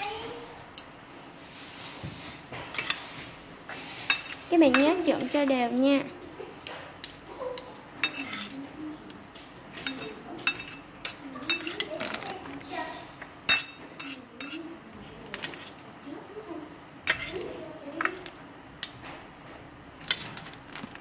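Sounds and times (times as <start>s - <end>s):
utensils clinking on ceramic plate: 2.7s - 3.0s, 4.1s - 5.9s, 6.6s - 8.7s, 9.7s - 12.6s, 13.5s - 15.9s, 17.0s - 19.0s, 20.0s - 20.9s.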